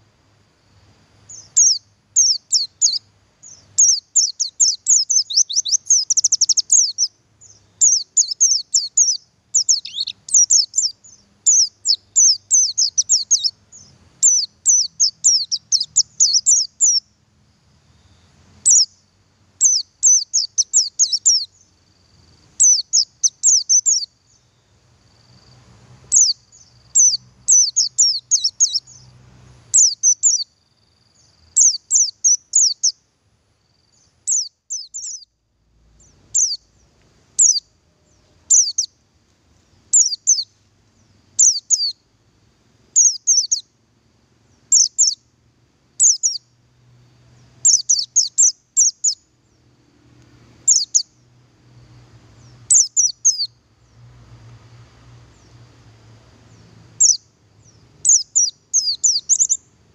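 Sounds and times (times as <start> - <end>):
bird high thin chirps: 1.3 - 17.1, 18.6 - 19.0, 19.6 - 21.7, 22.6 - 24.1, 26.1 - 29.1, 29.7 - 30.5, 31.5 - 33.0, 33.9 - 35.3, 36.3 - 36.7, 37.4 - 38.9, 39.9 - 40.5, 41.4 - 42.0, 43.0 - 43.6, 44.7 - 45.2, 46.0 - 46.4, 47.6 - 49.2, 50.7 - 51.1, 52.4 - 53.6, 57.0 - 59.7.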